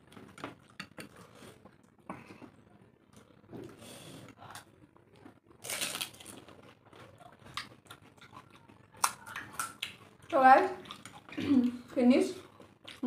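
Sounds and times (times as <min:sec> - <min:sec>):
crisp shells crunching and chewing: 0:05.5 - 0:11.3.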